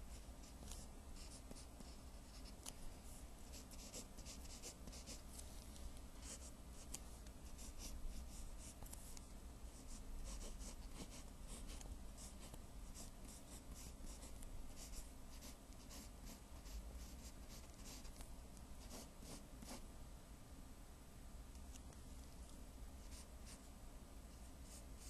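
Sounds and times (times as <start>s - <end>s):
low steady hum: 0.0s - 25.0s
pencil scratching on paper: 0.1s - 2.7s, 3.4s - 5.2s, 9.8s - 18.1s, 18.8s - 19.8s.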